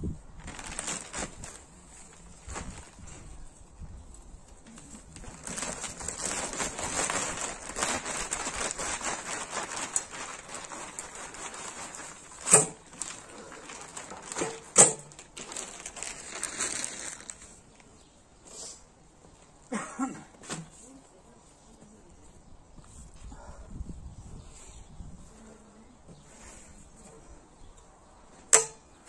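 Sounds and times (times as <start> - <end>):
compost pouring from plastic bag: 0.4 - 3.2, 5.0 - 17.6.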